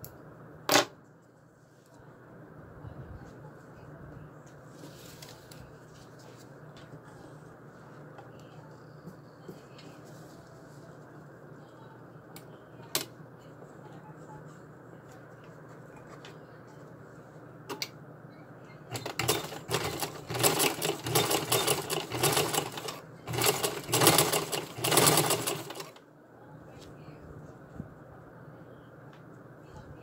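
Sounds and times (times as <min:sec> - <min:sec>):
sewing machine stitching: 0:18.9 - 0:26.0.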